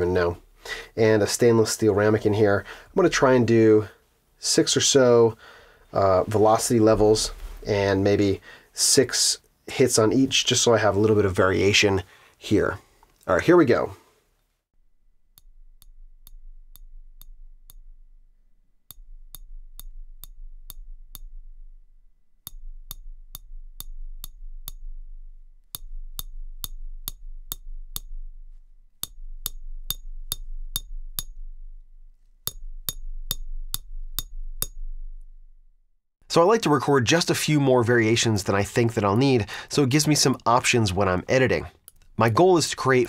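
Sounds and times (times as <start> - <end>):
chopstick tapping metal bowl: 15.3 - 18.1, 18.9 - 21.7, 22.5 - 28.3, 29.0 - 31.7, 32.5 - 34.9.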